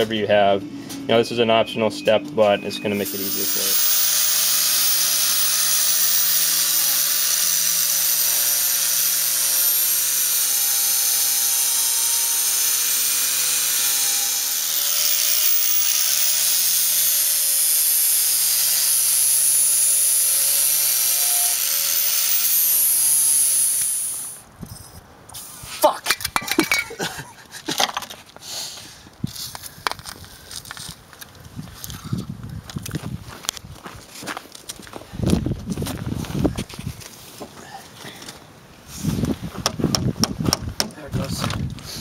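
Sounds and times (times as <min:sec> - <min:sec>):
angle grinder grinding plastic: 0:02.6 - 0:24.4.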